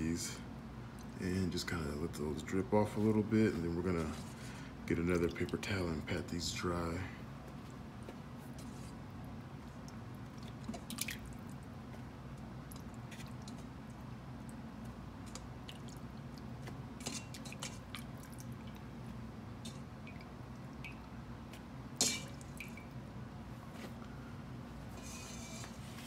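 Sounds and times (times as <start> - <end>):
steady low hum: 0.0 - 26.0
wet chicken squishing: 9.7 - 19.1
water dripping: 9.8 - 11.7, 12.3 - 19.0, 19.6 - 21.2, 22.0 - 23.0.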